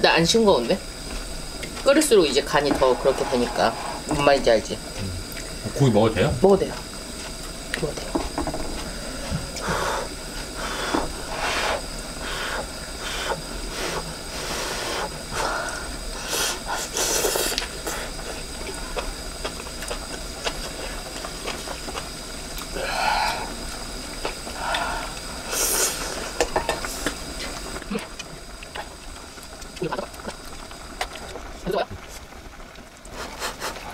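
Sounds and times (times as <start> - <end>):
blowing on hot food: 8.9 - 19.2, 20.3 - 28.2
chewing and slurping: 11.3 - 22.8.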